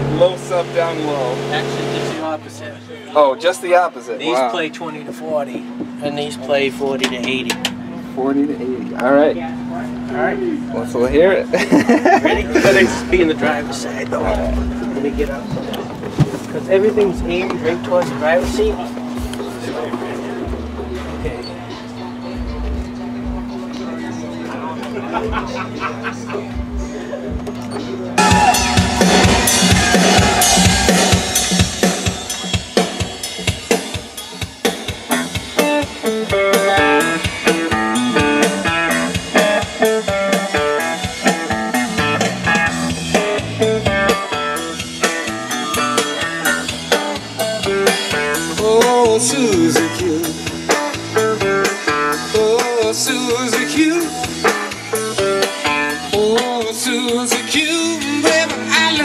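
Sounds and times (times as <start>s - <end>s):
heavy bass: 0.0s - 3.4s, 5.0s - 59.0s
loud music with drums and guitar: 24.9s - 59.0s.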